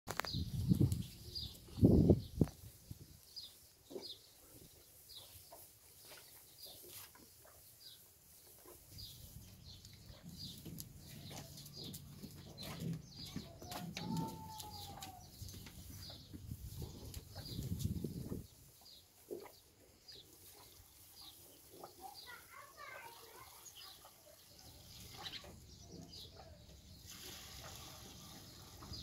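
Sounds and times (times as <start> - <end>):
bird chirping: 3.3 - 27.0
goat slurping milk: 27.0 - 29.0.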